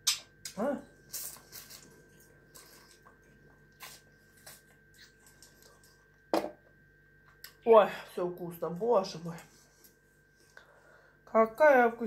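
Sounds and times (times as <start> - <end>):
person chewing: 0.0 - 6.1.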